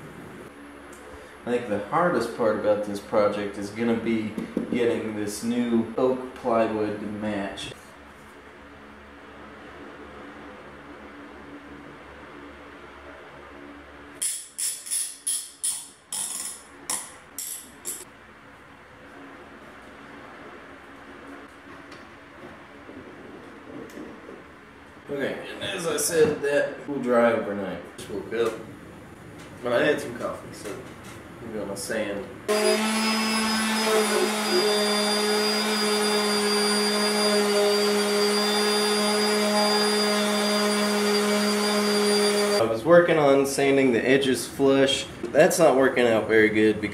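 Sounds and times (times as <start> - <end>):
orbital sander on wood: 32.5 - 42.6.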